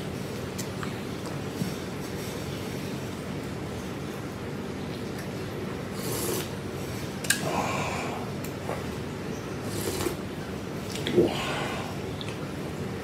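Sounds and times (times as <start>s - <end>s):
steady low hum: 0.0s - 13.0s
slurping broth: 5.9s - 6.6s, 9.6s - 10.2s.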